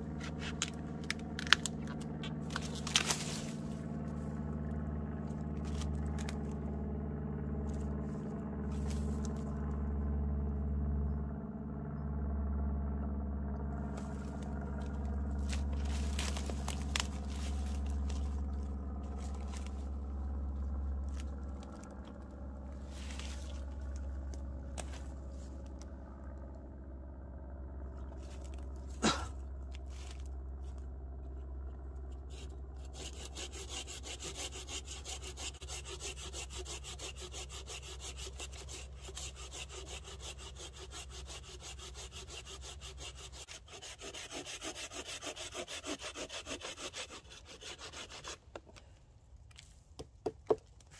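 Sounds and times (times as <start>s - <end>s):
hand saw cutting log: 0.0s - 4.2s, 5.6s - 6.6s, 13.9s - 22.2s, 22.8s - 25.5s, 28.2s - 29.3s, 32.1s - 48.9s
log and sticks scraping and knocking: 0.0s - 6.7s, 7.6s - 9.7s, 13.8s - 26.2s, 28.0s - 50.9s
low engine drone: 0.0s - 50.9s.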